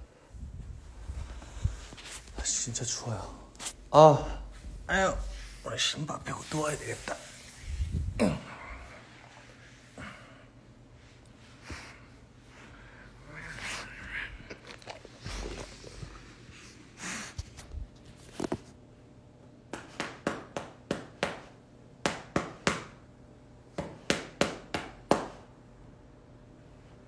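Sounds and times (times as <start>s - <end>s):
dog rustling and shuffling: 0.5s - 3.8s, 14.8s - 18.8s.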